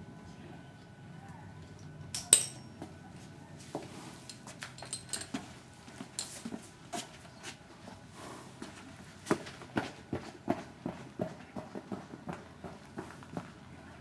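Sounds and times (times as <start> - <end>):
metal snap clinking on halter: 1.7 - 2.7, 4.2 - 6.5
footsteps on barn floor: 3.2 - 13.6.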